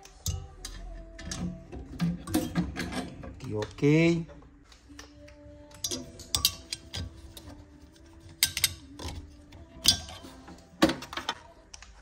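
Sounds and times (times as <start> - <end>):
faint music: 0.0 - 12.0
tools and parts clicking: 0.0 - 12.0.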